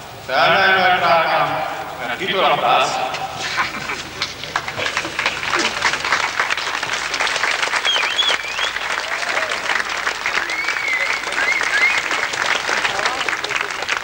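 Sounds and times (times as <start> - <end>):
voices calling out: 0.3 - 14.0
crowd applauding: 3.1 - 14.0.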